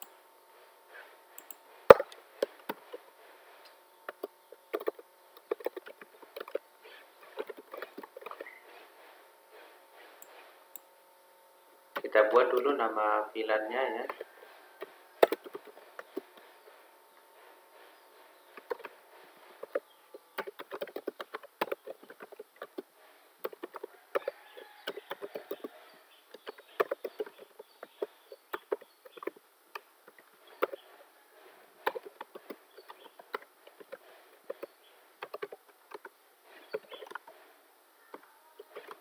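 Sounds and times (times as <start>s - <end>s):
computer keyboard typing: 4.1s - 6.6s, 7.2s - 8.5s, 14.8s - 16.3s, 18.6s - 19.0s, 20.4s - 29.4s, 31.8s - 37.3s.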